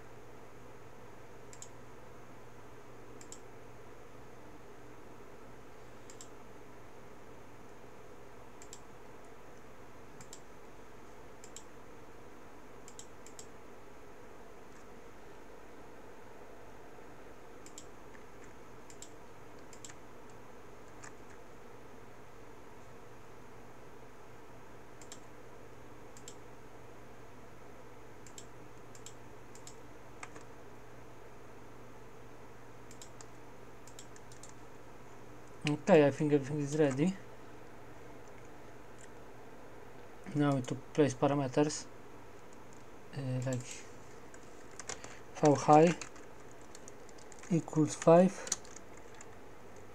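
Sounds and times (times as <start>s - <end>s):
faint steady hum: 0.0s - 49.9s
computer mouse clicking: 1.5s - 1.8s, 3.2s - 3.4s, 6.0s - 6.4s, 8.6s - 8.9s, 10.2s - 10.5s, 11.4s - 11.7s, 12.8s - 13.5s, 17.6s - 21.4s, 25.0s - 25.3s, 26.1s - 26.4s, 28.2s - 30.5s, 32.9s - 34.6s, 38.2s - 39.2s, 42.4s - 49.9s.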